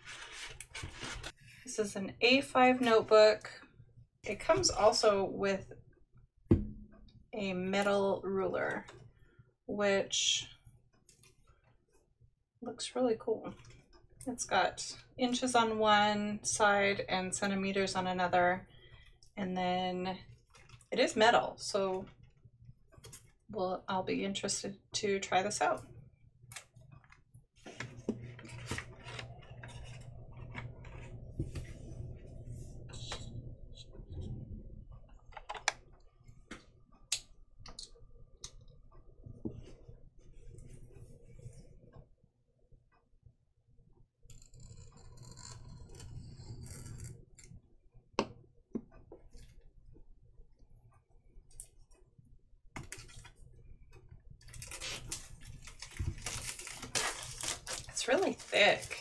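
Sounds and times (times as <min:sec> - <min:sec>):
faint steady hum: 0:27.6 - 0:42.0
plastic wrap crinkling and tearing: 0:54.4 - 0:59.0.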